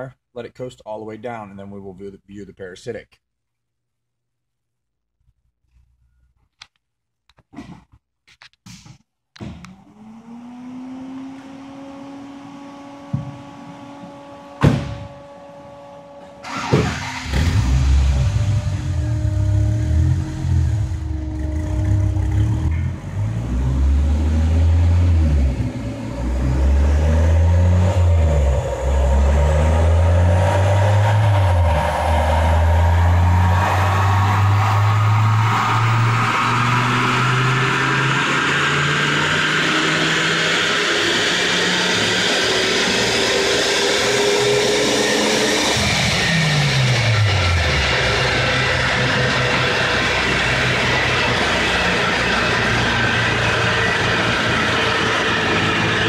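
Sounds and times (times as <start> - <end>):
car engine accelerating hard: 9.7 - 56.0
thin high whine: 15.0 - 40.2.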